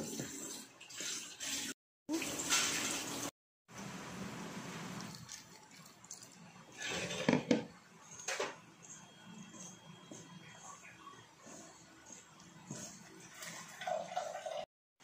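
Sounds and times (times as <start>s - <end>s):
hands mixing dough in glass bowl: 8.0s - 14.5s
liquid pouring from jug: 13.2s - 14.6s.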